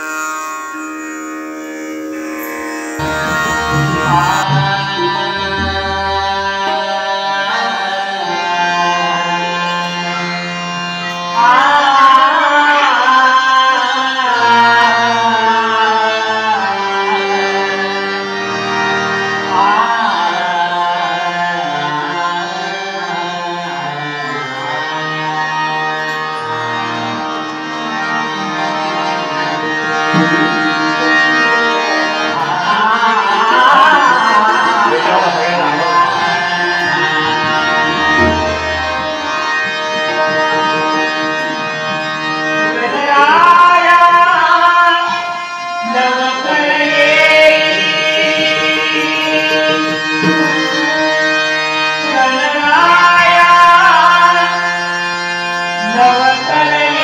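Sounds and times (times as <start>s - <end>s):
long held instrumental notes: 0.0s - 57.0s
man singing: 3.0s - 10.4s, 11.3s - 18.1s, 19.5s - 26.0s, 28.9s - 41.9s, 42.5s - 54.9s, 55.8s - 57.0s.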